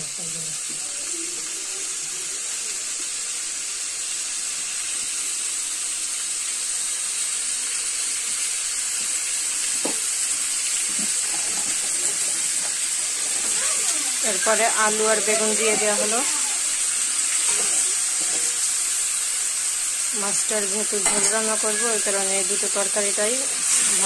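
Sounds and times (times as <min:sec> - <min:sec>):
fish sizzling in hot oil: 0:00.0 - 0:24.0.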